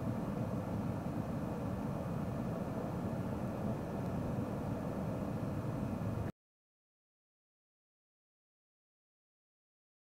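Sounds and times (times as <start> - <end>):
steady low rumble: 0.0 - 6.3.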